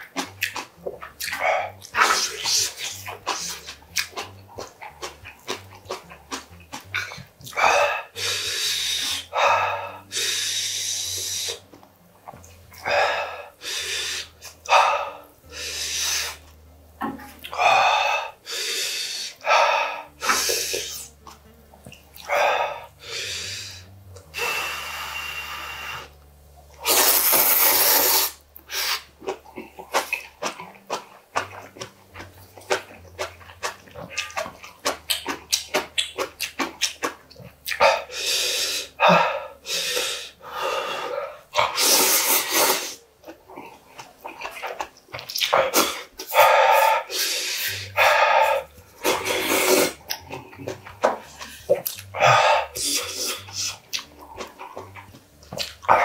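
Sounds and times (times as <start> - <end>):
wet chewing clicks: 0.0 - 7.8, 20.2 - 22.5, 28.6 - 38.2, 41.6 - 56.0
slurping noodles: 0.1 - 11.6, 17.5 - 21.2, 26.8 - 56.0
hard breaths: 7.0 - 11.6, 12.8 - 16.4, 37.8 - 43.0, 45.6 - 50.0, 51.0 - 53.8.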